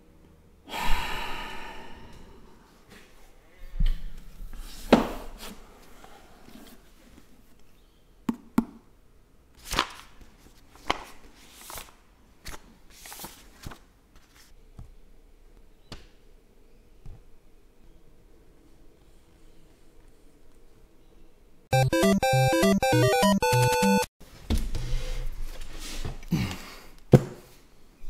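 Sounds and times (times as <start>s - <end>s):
paper pages rustling: 9.6s - 14.6s.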